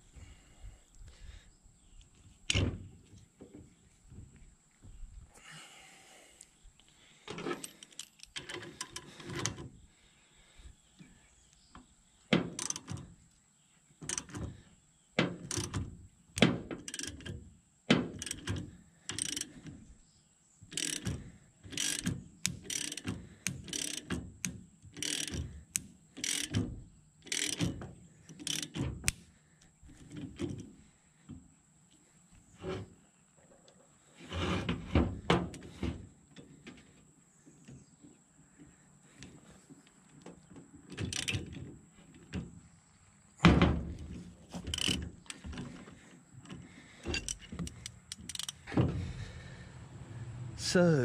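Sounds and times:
hand ratchet clicking: 12.6 - 12.9, 16.8 - 17.3, 18.1 - 19.5, 20.7 - 26.6, 27.2 - 29.2, 44.7 - 45.5, 47.1 - 48.6.

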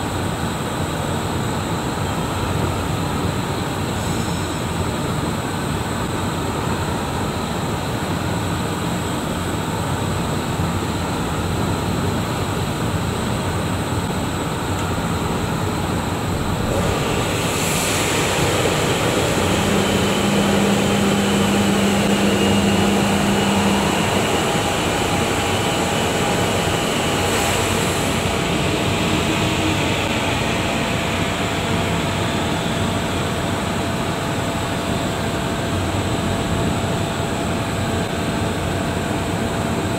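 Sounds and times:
low hum: 15.2 - 33.0
metal-spinning machine rush: 16.2 - 30.1.

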